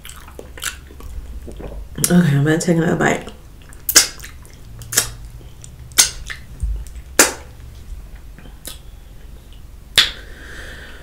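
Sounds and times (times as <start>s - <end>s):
wet lip smacks: 3.6s - 7.5s, 8.6s - 8.8s.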